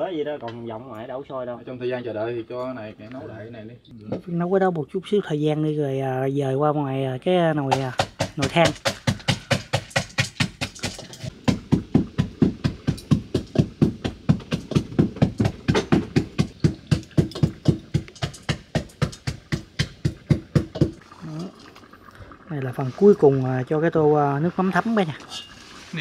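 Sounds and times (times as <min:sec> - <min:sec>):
knife chopping on wooden board: 0:07.7 - 0:21.0.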